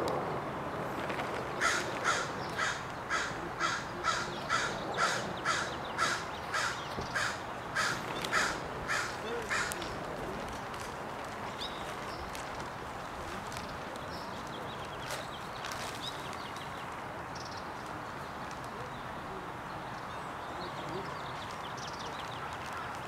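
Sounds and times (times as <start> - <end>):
outdoor background noise: 0.0 - 23.0
bird calling: 1.6 - 10.0.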